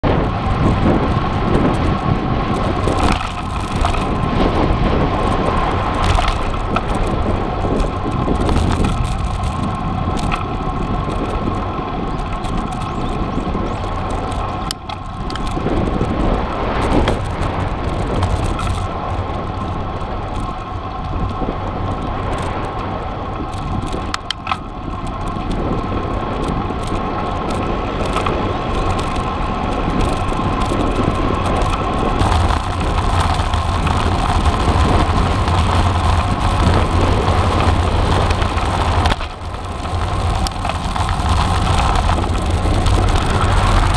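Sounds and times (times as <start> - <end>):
tyre rumble on road: 0.0 - 43.9
wind noise: 0.0 - 43.9
bike rattling knocks: 2.6 - 20.5.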